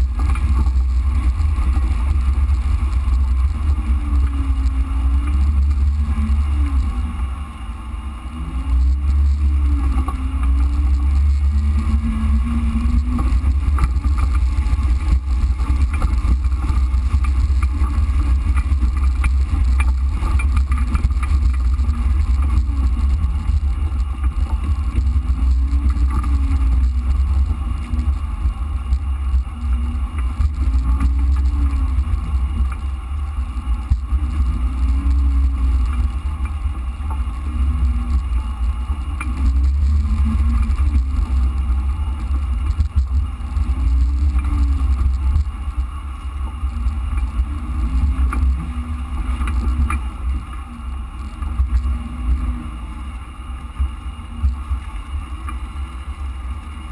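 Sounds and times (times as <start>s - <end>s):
heavy low rumble: 0.0s - 56.9s.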